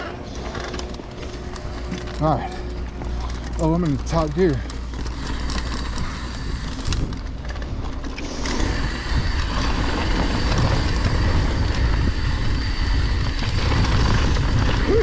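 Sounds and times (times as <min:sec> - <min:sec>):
bike rattling clicks: 0:00.0 - 0:14.8
tyres rumbling over dirt: 0:00.0 - 0:15.0
wind buffeting microphone: 0:03.0 - 0:15.0.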